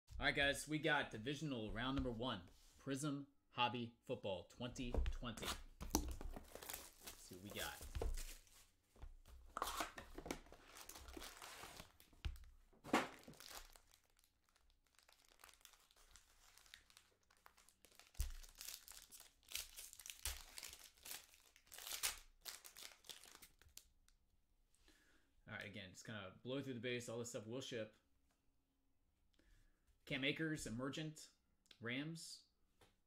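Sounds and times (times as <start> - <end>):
foil wrappers crinkling and tearing: 13.0 - 23.6.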